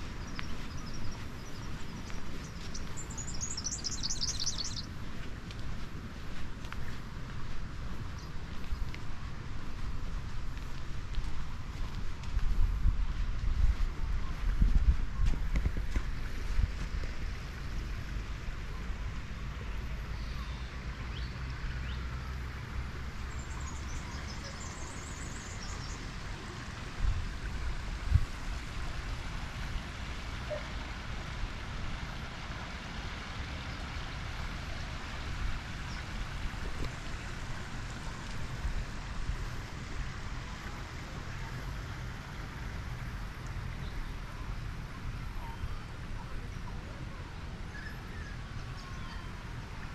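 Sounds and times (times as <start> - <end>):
wind rumbling on microphone: 0.0 - 49.9
high chirps: 2.5 - 4.9.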